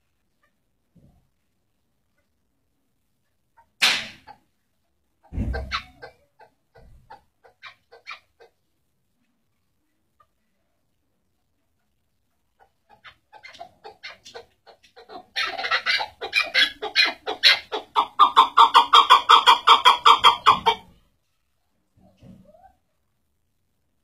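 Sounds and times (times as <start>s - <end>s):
partridge clucking calls: 5.2s - 8.6s, 12.5s - 20.9s.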